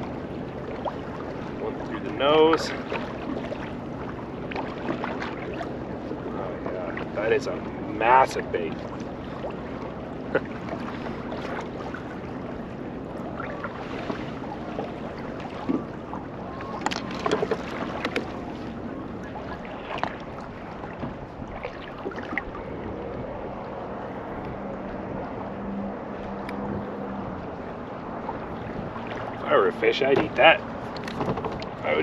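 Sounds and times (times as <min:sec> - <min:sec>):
water lapping against kayak hull: 0:00.0 - 0:32.0
wind on microphone: 0:15.2 - 0:29.5
small clicks and knocks of tackle: 0:16.7 - 0:18.4, 0:30.2 - 0:31.8.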